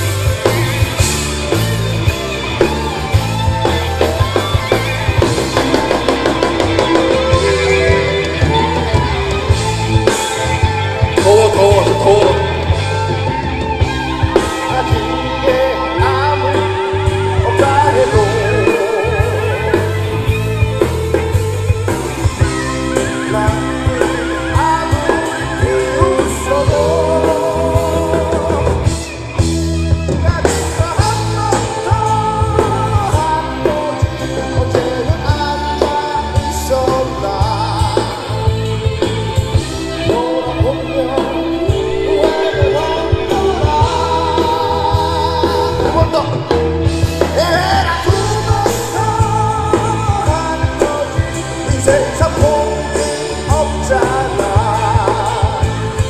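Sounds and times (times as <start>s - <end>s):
live rock band: 0.0s - 56.0s
man singing into microphone: 11.0s - 13.5s, 14.4s - 20.6s, 22.8s - 29.2s, 30.1s - 56.0s.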